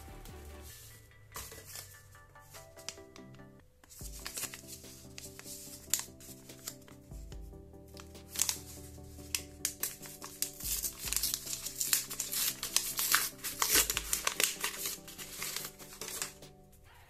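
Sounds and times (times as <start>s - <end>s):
background music: 0.0s - 17.0s
wrapper crinkling and tearing: 3.9s - 6.9s, 8.0s - 16.4s.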